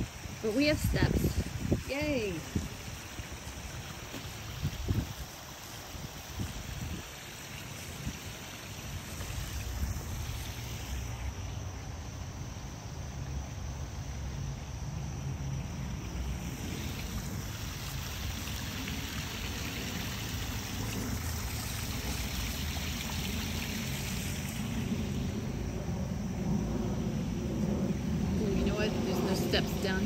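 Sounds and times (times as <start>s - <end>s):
waterfall splashing over rocks: 0.0s - 10.5s, 16.6s - 25.0s.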